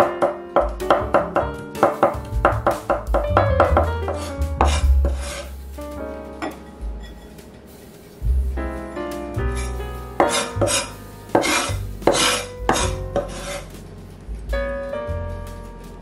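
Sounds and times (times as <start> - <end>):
background music with bass line: 0.0 - 16.0
cleaver scraping cutting board: 3.7 - 5.6, 9.6 - 13.7.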